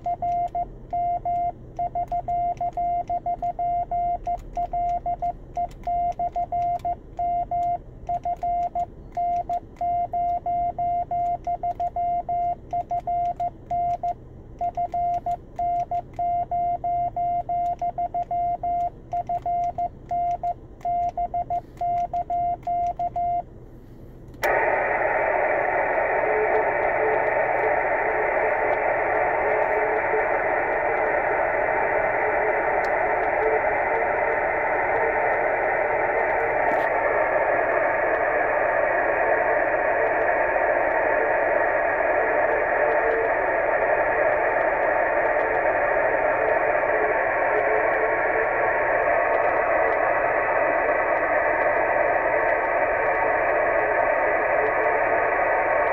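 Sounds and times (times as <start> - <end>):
morse code tone: 0.0 - 23.4, 24.5 - 55.9
radio receiver hiss: 23.8 - 55.9.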